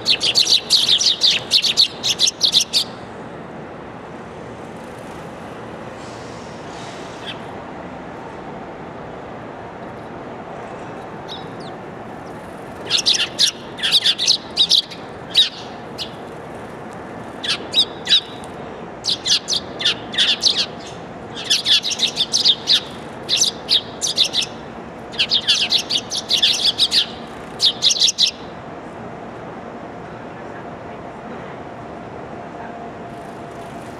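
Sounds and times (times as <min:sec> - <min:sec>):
sparrows chirping: 0:00.0 - 0:03.1, 0:07.2 - 0:07.4, 0:10.9 - 0:28.6
faint background hum: 0:00.0 - 0:33.9.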